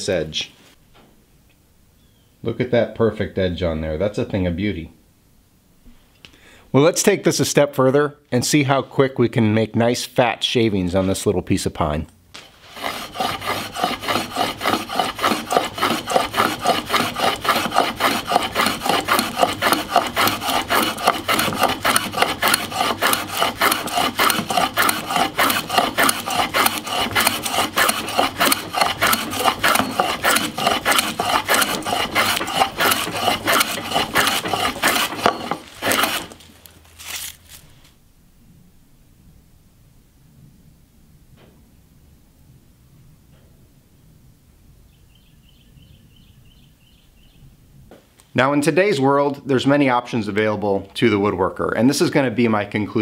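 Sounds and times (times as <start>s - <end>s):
hand plane shaving wood: 12.4s - 37.4s.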